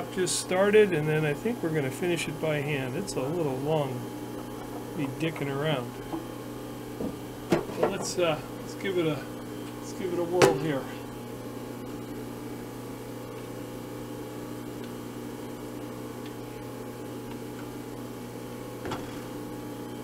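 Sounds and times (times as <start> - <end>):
milling machine running: 0.0 - 13.2.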